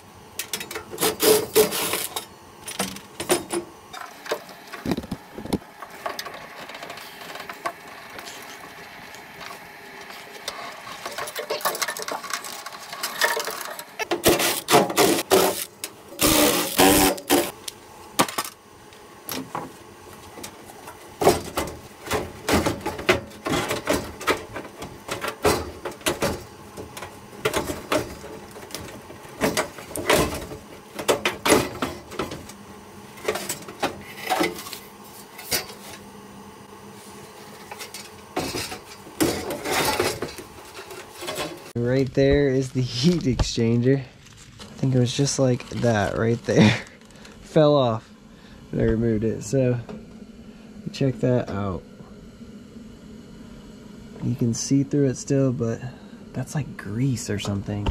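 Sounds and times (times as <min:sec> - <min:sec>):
sheet-metal parts clattering: 0:10.5 - 0:15.6.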